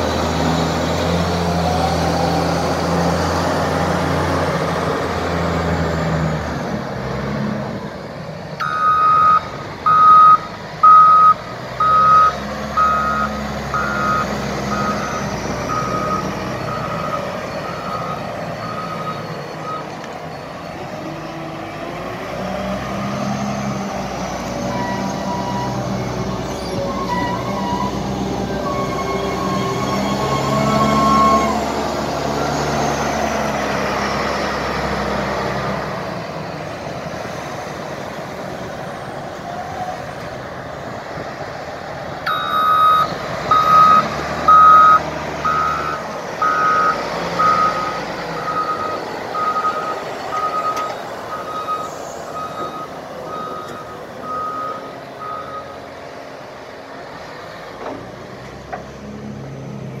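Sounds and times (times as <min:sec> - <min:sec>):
diesel engine running under load: 0:00.0 - 1:00.0
reversing alarm beeping: 0:08.6 - 0:21.2, 0:42.3 - 0:55.8.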